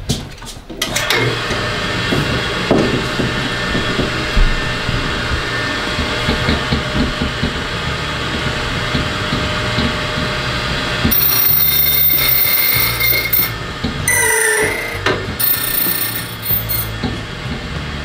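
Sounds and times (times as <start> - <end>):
key cutting machines clicking: 11.1 - 13.5, 15.4 - 16.9.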